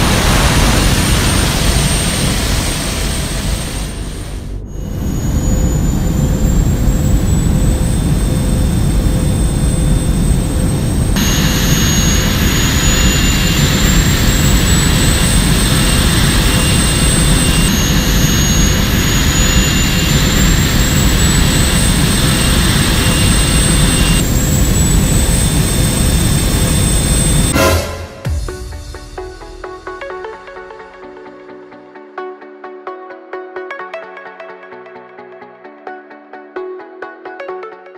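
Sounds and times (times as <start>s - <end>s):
jet engine low rumble: 0.0s - 30.5s
high turbine whine: 0.0s - 31.0s.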